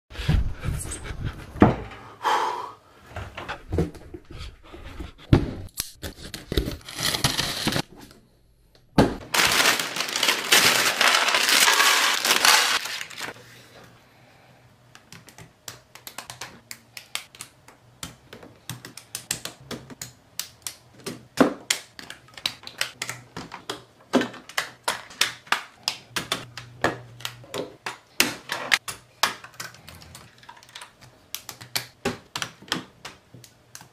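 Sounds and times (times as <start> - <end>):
plastic bricks clicking and rattling: 9.4 - 12.9.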